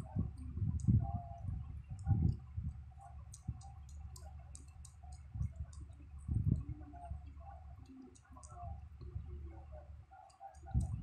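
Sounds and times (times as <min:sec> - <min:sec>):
cat licking with wet clicks: 0:01.9 - 0:09.2.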